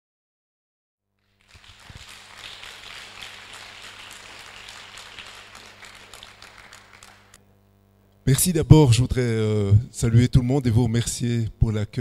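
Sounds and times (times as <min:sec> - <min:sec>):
steady electrical hum: 0:01.1 - 0:12.0
audience applauding: 0:01.2 - 0:07.4.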